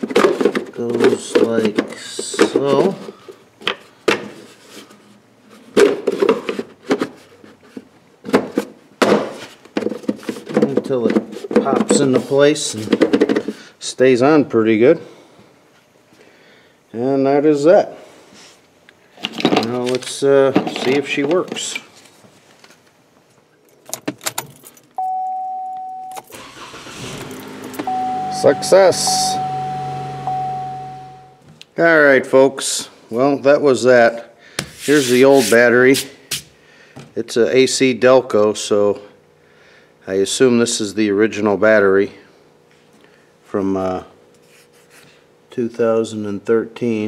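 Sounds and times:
car keys jangling: 23.7s - 25.2s
electronic chime: 25.0s - 26.2s, 27.9s - 31.4s
car engine cranking and starting: 26.3s - 31.3s.

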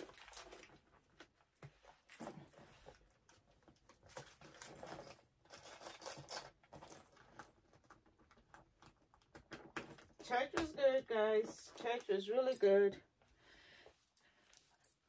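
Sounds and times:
handbag clicks and rustles: 0.0s - 13.0s.

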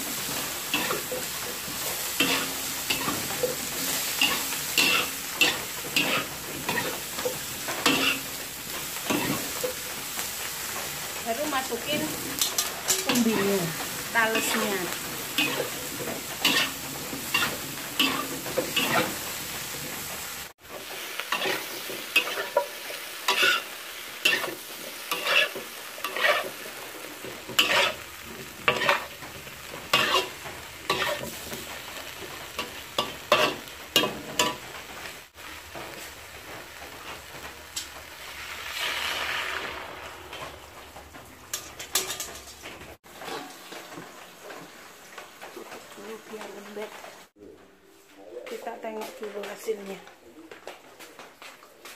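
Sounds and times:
spatula scraping a wok: 0.0s - 34.9s, 38.2s - 44.1s
food sizzling in hot oil: 0.0s - 47.4s.

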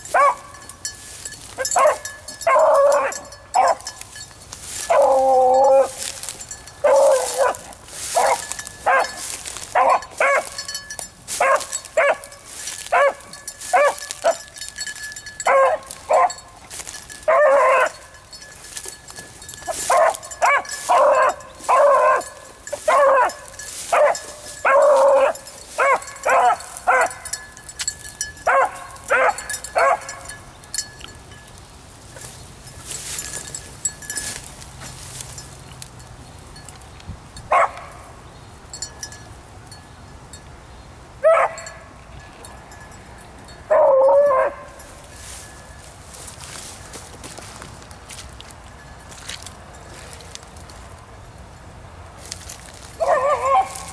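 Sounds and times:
dog baying: 1.6s - 3.9s, 4.9s - 6.1s, 6.8s - 9.2s, 17.3s - 18.1s, 19.7s - 27.3s.

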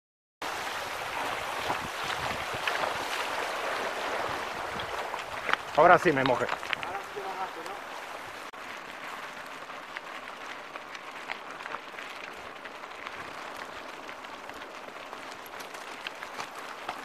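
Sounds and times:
bike tyres crunching on gravel: 0.4s - 17.0s
bike clicking and rattling: 2.0s - 7.8s, 8.6s - 17.0s.

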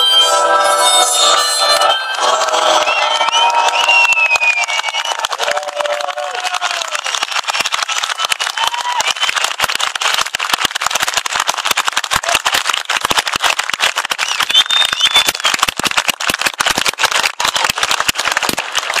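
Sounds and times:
crowd applauding: 1.8s - 19.0s
short whistle: 14.2s - 15.6s.

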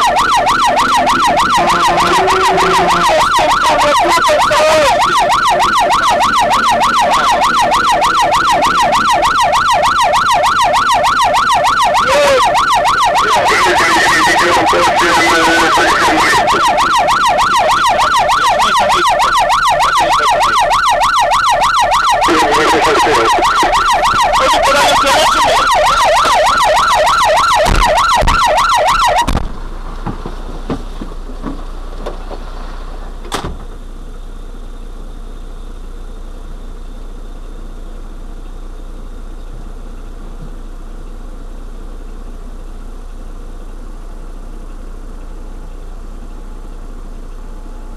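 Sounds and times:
fire engine siren yelping: 0.0s - 29.9s
engine running quietly: 29.0s - 47.9s.

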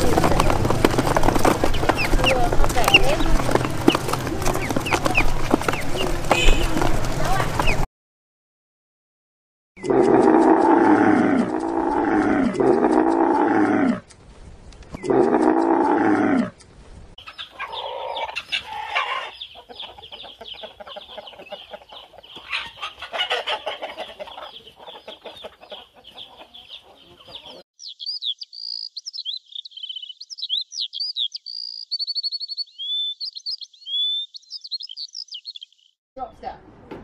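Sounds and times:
sparrows chirping: 0.0s - 7.8s, 17.2s - 36.5s
chickens clucking: 0.0s - 7.9s, 17.2s - 27.6s
camel calling: 9.8s - 14.0s, 15.0s - 16.5s.

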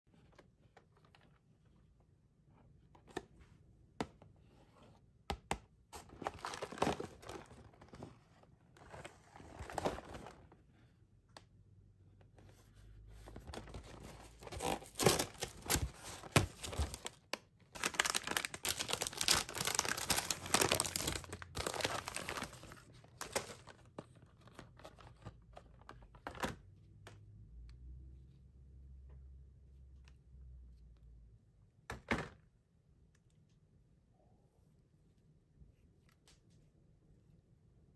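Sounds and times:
cardboard packaging tearing: 14.2s - 23.7s.

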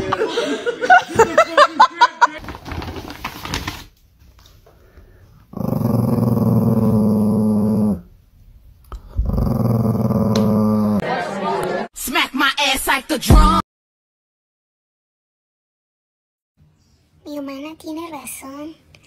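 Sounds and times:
small dog growling: 5.5s - 8.1s, 8.9s - 11.0s.

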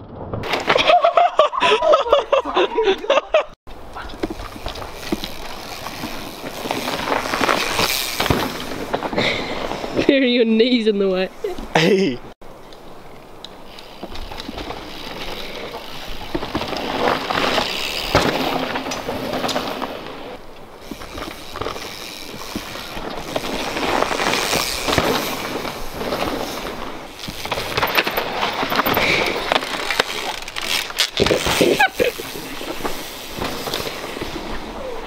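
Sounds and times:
bikes clattering and knocking: 0.0s - 35.0s
bike tyres skidding through dirt: 3.7s - 10.0s, 13.6s - 35.0s.

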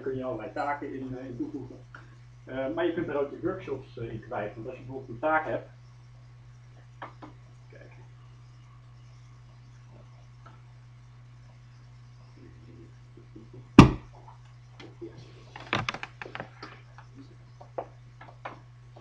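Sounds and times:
steady low hum: 0.0s - 19.0s
loud thump: 13.8s - 14.1s
cable clicks and knocks: 15.6s - 16.5s.

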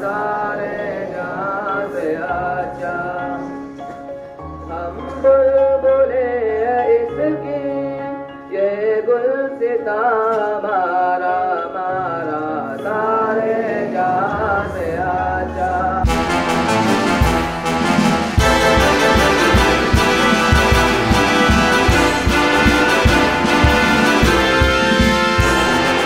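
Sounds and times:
person singing wavering notes: 4.6s - 16.1s
bright instrumental music with beat: 14.3s - 26.0s.

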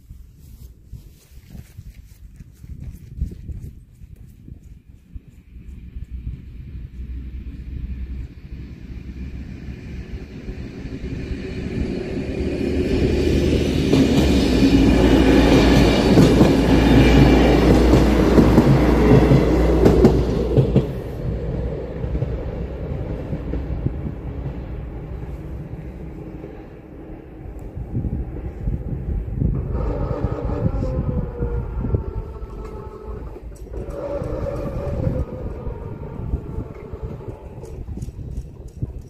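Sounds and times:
passenger train passing: 5.0s - 39.0s
wheel clicks over rail joints: 32.2s - 35.8s.

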